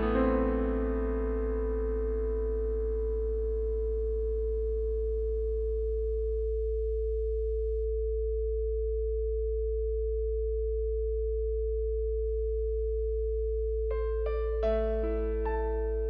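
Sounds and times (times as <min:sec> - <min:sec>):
soft keyboard notes: 0:00.0 - 0:06.4, 0:13.9 - 0:16.0
higher pure tone: 0:00.0 - 0:08.7
low sine tone: 0:00.0 - 0:16.0.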